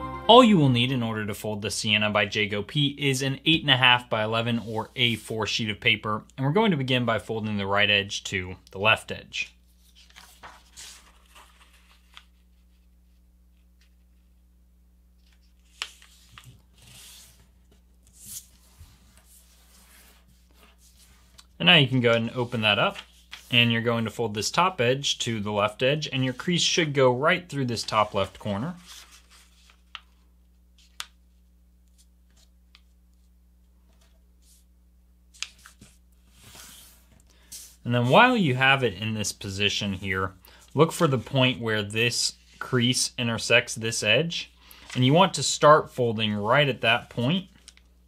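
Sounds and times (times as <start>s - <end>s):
paper rustling: 9.7s - 14.4s, 15.2s - 24.1s, 27.6s - 34.7s, 35.3s - 38.7s, 46.9s - 47.9s
hand rubbing paper: 15.3s - 23.7s, 35.4s - 38.4s.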